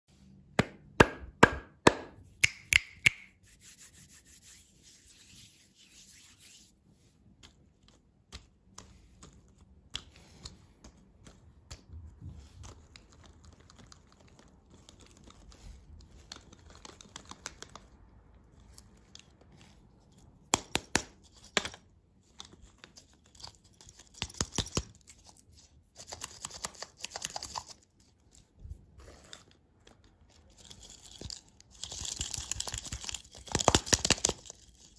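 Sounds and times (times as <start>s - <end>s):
soft rubbing and handling: 3.3s - 17.1s, 24.9s - 31.9s.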